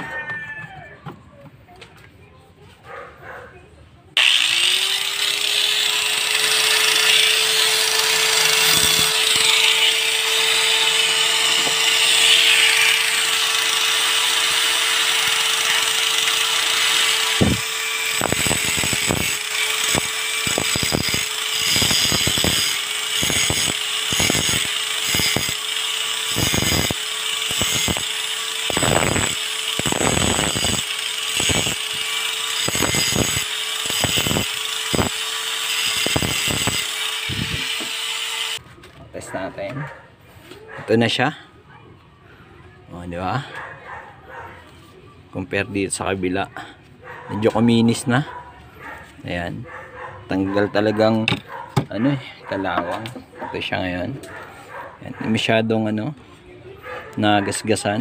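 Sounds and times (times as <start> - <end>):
angle grinder motor whine: 4.2 - 38.6
grinding disc on steel: 4.2 - 38.6.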